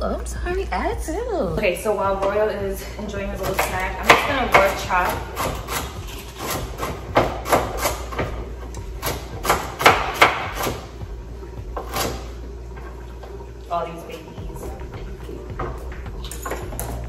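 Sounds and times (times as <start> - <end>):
knife chopping on cutting board: 3.4 - 8.4, 9.0 - 10.9, 11.8 - 12.3.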